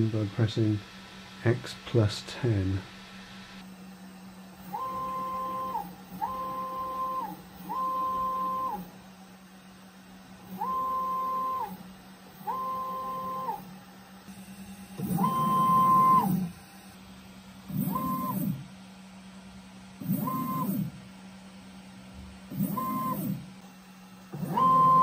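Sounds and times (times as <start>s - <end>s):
stepper motors whining: 24.3s - 25.0s.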